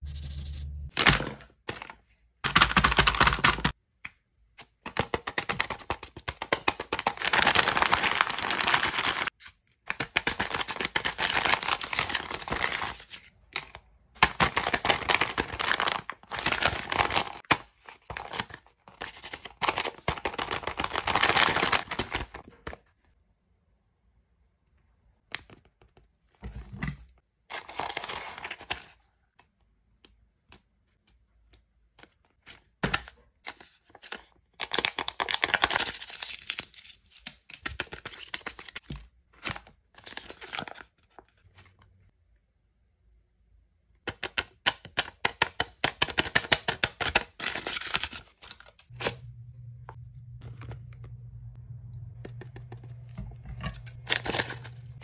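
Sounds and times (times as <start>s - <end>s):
paper tearing and crinkling: 14.3s - 17.6s, 53.6s - 55.0s
low steady hum: 48.9s - 55.0s.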